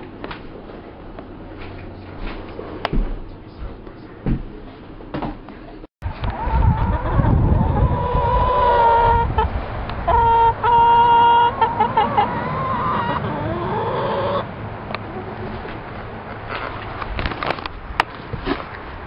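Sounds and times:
chickens calling: 0:06.1 - 0:15.8.

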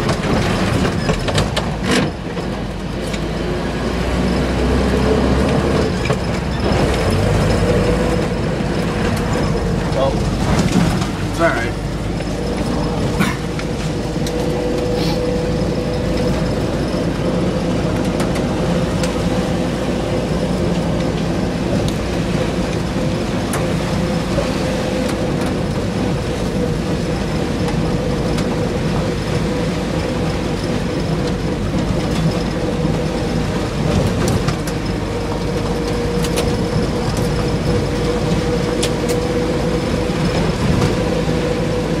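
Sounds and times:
engine and drivetrain rumble: 0:00.0 - 0:42.0
tyres on gravel: 0:06.0 - 0:19.2.

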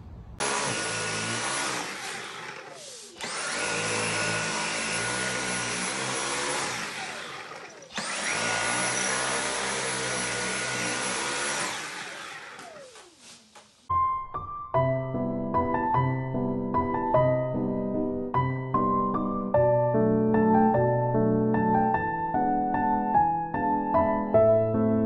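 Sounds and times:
vacuum cleaner motor whine: 0:00.4 - 0:13.8.

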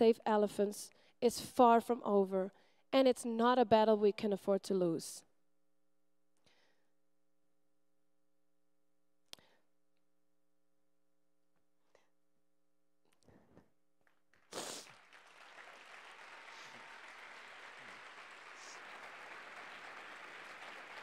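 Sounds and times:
audience applause in hall: 0:14.4 - 0:21.0.

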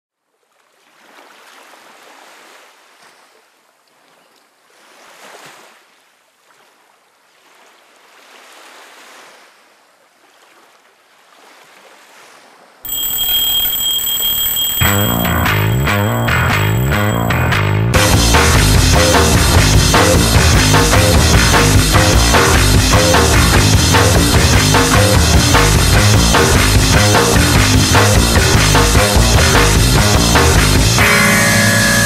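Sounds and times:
alarm clock ringing: 0:12.9 - 0:17.6
rock music with guitar: 0:12.9 - 0:32.0.

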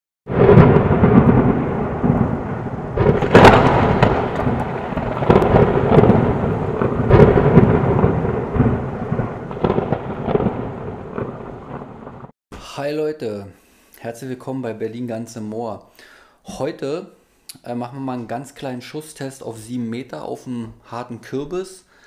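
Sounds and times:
loud thunder claps: 0:00.3 - 0:12.3
rain: 0:00.3 - 0:12.3
thunder rumbling: 0:00.3 - 0:12.3.

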